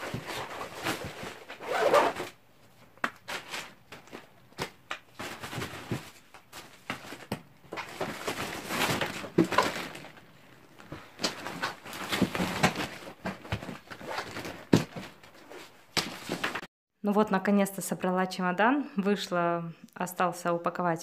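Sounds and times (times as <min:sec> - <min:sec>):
rustling of contents and plastic bags: 0:00.0 - 0:16.7.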